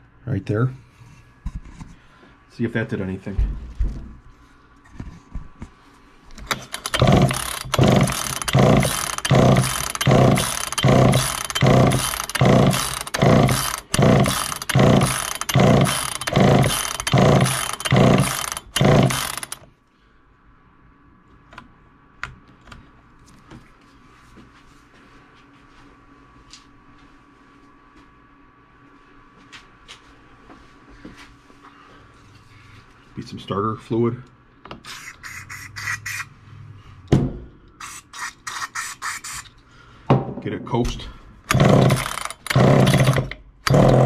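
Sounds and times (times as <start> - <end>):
chainsaw pull-starter cranking: 6.4 - 19.7, 41.5 - 44.0.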